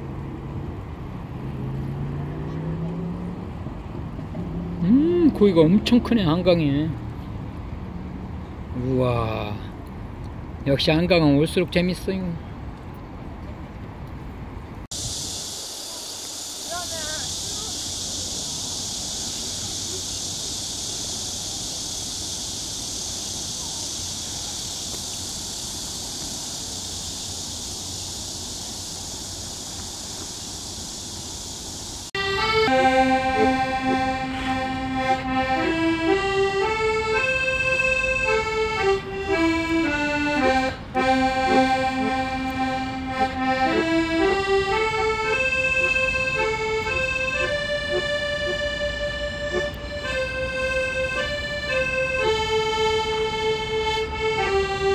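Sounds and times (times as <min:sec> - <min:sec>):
steady high hiss: 0:00.0 - 0:12.5, 0:14.6 - 0:54.9
accordion playing slow tune: 0:03.9 - 0:07.0, 0:32.1 - 0:54.9.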